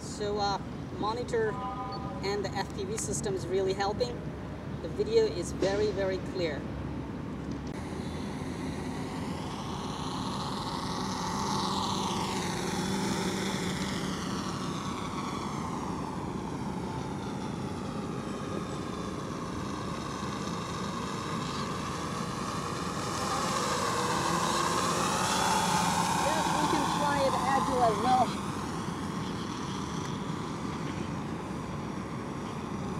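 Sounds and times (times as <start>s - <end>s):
quadcopter propellers buzzing: 7.8s - 32.9s.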